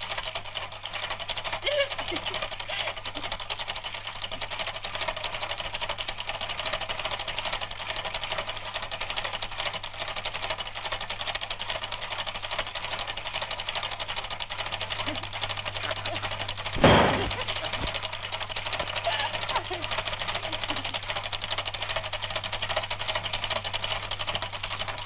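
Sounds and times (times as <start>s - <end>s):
film projector clattering: 0.0s - 25.0s
low hum: 15.0s - 19.8s
loud bang: 16.8s - 17.5s.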